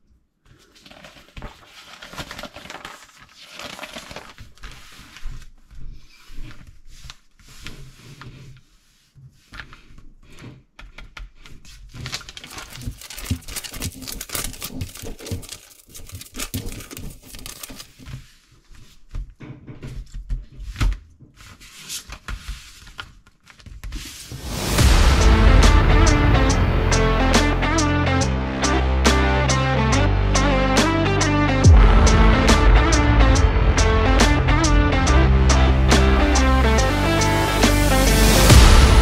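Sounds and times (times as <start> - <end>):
paper pages rustling and crinkling: 0.4 - 24.8
low thumps: 24.4 - 39.0.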